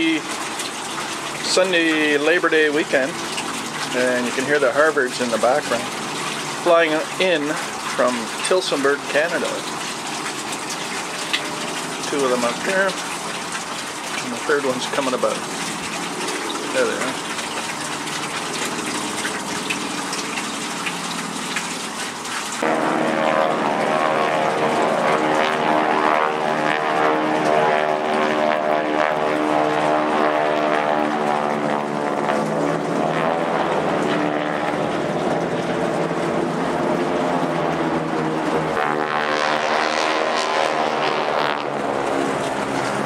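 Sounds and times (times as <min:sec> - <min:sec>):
propeller planes droning overhead: 0:00.0 - 0:43.0.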